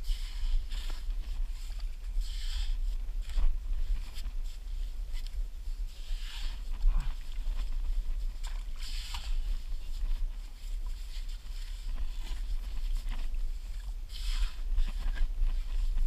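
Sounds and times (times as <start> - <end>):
shovel scraping wet sand: 14.1 - 15.8.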